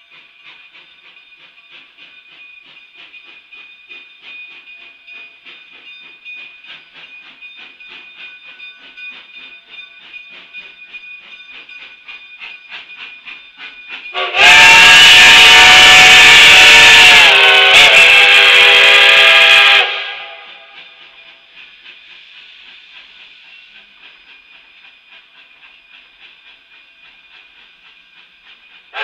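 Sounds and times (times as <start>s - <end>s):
steam hissing: 0.0s - 29.0s
steam locomotive chuffing: 0.0s - 29.0s
loud steam whistle: 14.1s - 21.0s.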